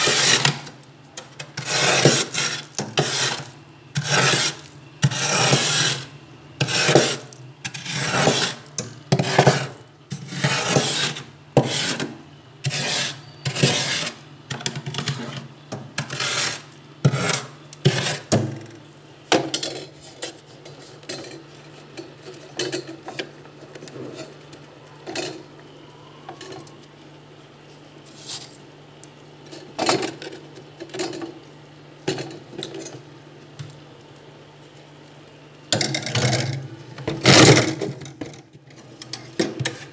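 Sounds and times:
metal spoon scraping frost: 0.0 - 18.4.

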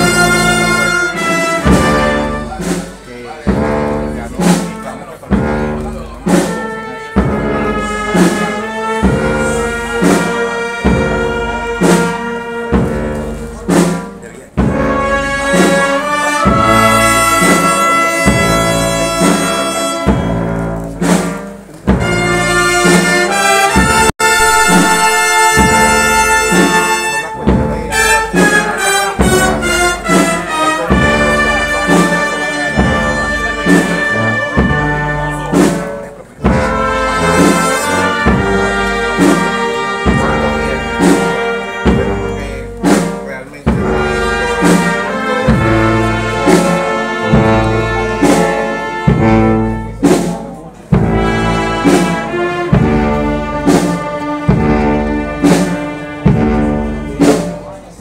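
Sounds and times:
brass band playing march: 0.0 - 58.0
drum or cymbal strokes: 0.0 - 58.0.

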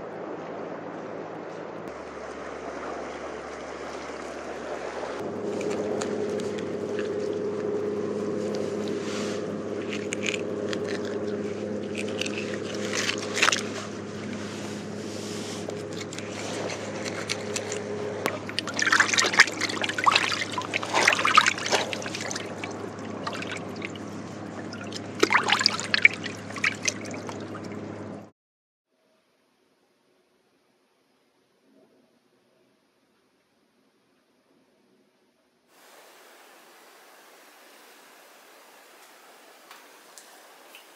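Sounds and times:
low motor hum: 0.0 - 28.3
water splashing and sloshing: 0.0 - 28.3.

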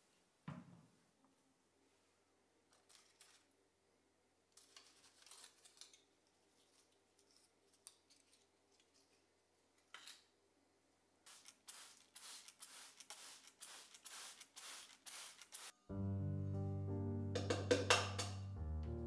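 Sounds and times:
spray bottle spraying: 11.3 - 15.8.

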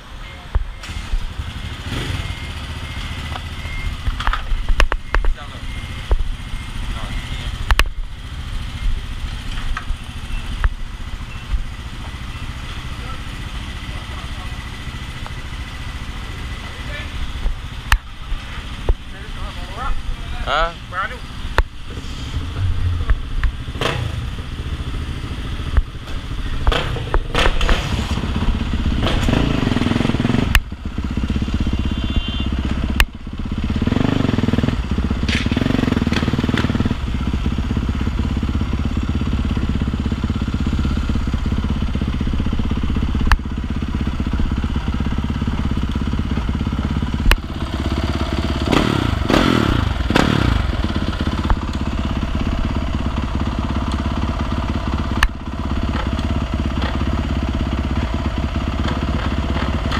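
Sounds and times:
dirt bike engine revving: 0.8 - 3.3, 20.4 - 25.9, 26.5 - 43.3, 43.9 - 52.7.

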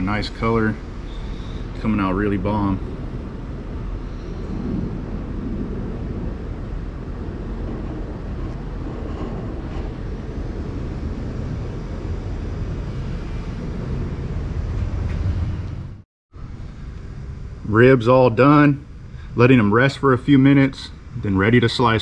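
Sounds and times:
low rumble: 0.0 - 22.0
hiss: 1.0 - 2.0, 3.9 - 5.7.

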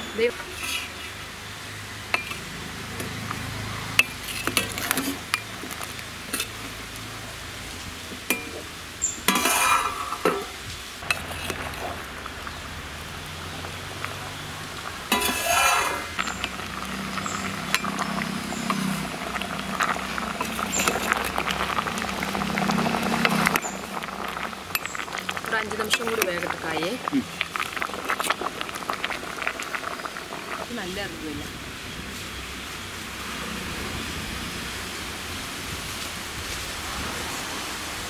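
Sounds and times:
pot bubbling: 0.0 - 37.4
ladle scraping in pot: 0.4 - 1.2, 4.0 - 6.7, 9.3 - 12.0, 15.1 - 26.8
ladle clinking on metal pot: 8.3 - 8.7, 9.3 - 10.5, 15.1 - 16.5.

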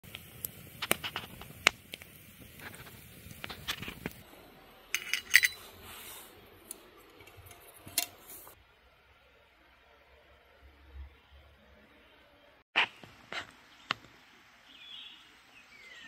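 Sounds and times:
campfire crackling and popping: 0.0 - 4.3
metal pot and lid clattering: 4.9 - 5.7.

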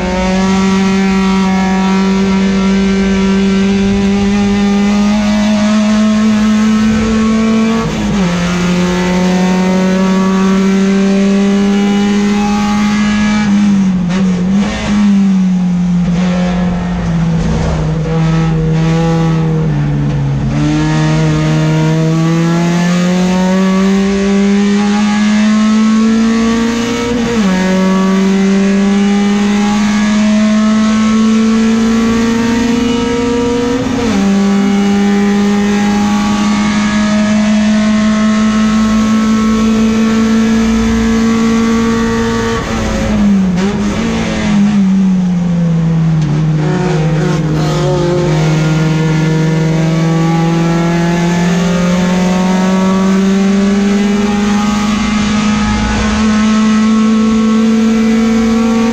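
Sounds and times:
race car engine at full throttle: 0.0 - 58.9.

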